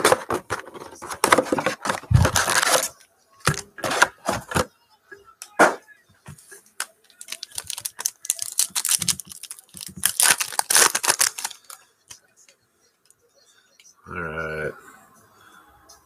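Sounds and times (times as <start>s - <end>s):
foil wrapper crinkling and tearing: 1.3s - 3.0s, 6.8s - 11.8s.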